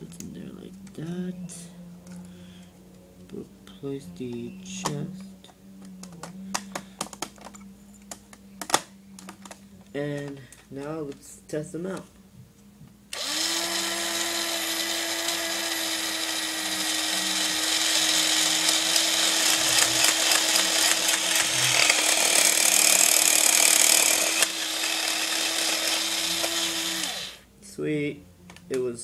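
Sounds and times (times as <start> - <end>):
toy motor whirring with gear chatter: 13.1 - 27.4.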